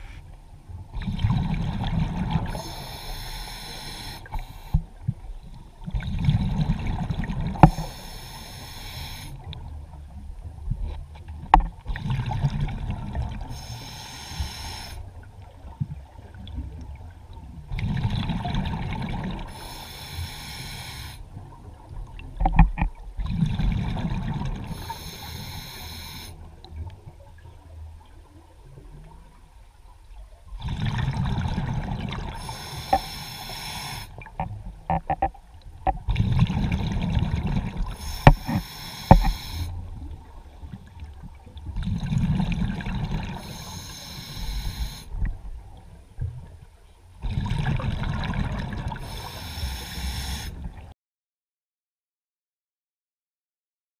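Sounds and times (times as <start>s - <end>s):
diver breathing through regulator: 2.4s - 4.9s, 7.6s - 9.4s, 13.5s - 15.1s, 19.5s - 21.2s, 24.7s - 26.4s, 32.3s - 34.2s, 37.9s - 39.8s, 43.4s - 45.2s, 49.0s - 50.6s.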